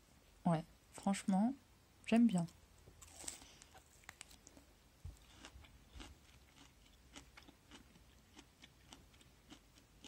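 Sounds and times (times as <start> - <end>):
chewing crisp fruit: 3.0 - 10.0.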